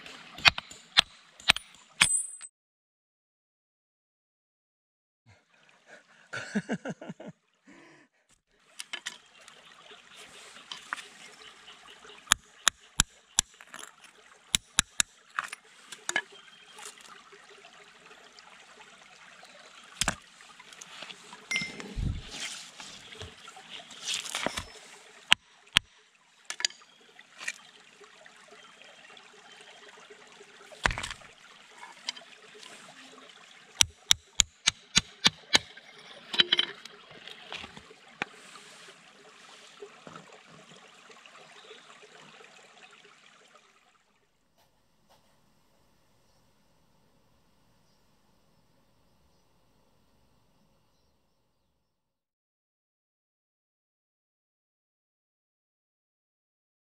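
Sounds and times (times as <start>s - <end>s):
stream trickling over stones: 0.0s - 2.0s, 5.3s - 7.8s, 8.5s - 44.6s
hammer striking steel chisel: 0.4s - 2.5s, 14.6s - 15.1s, 33.8s - 35.8s
rock and pebbles scraping: 21.8s - 25.4s, 35.6s - 38.9s.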